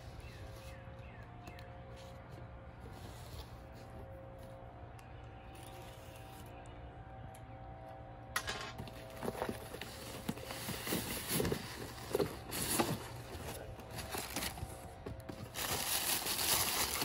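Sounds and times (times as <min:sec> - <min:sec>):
cardboard boxes scraping: 0:09.0 - 0:17.0.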